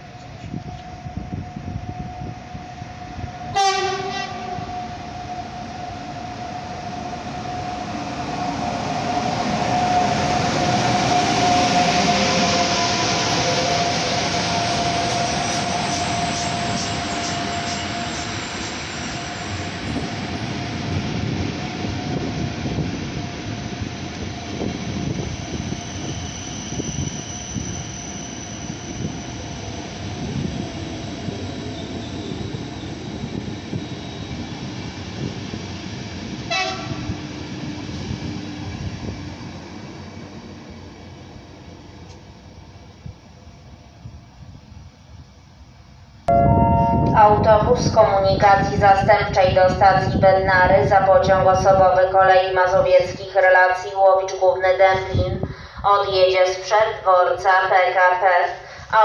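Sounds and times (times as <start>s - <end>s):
train passing at speed: 0.0s - 59.0s
locomotive horn blast: 3.5s - 4.9s, 36.5s - 37.1s, 46.3s - 47.5s.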